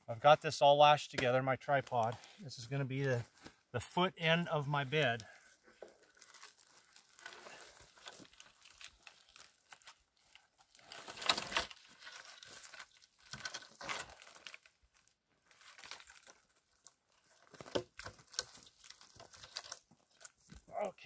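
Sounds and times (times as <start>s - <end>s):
rustling in dry grass and twigs: 5.0s - 20.7s.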